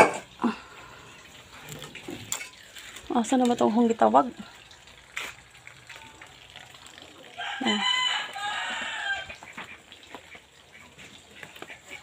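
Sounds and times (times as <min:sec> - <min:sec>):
rooster crowing: 0:07.4 - 0:09.4.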